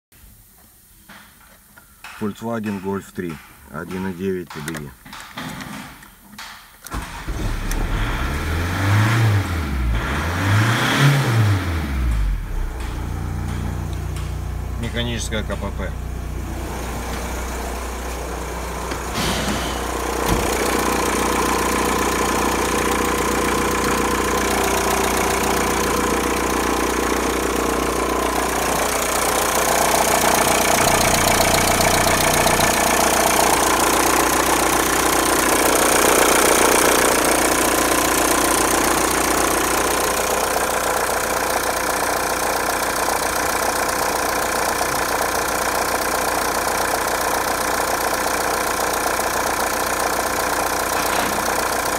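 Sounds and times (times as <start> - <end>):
diesel engine idling: 11.4 - 51.9.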